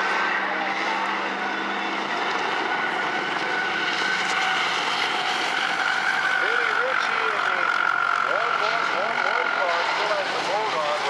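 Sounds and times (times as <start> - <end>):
racing car engines droning: 0.0 - 11.0.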